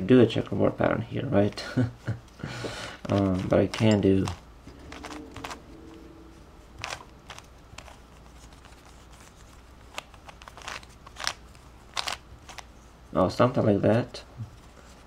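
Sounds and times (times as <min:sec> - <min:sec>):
plastic puzzle cube clicking: 0:09.9 - 0:12.6.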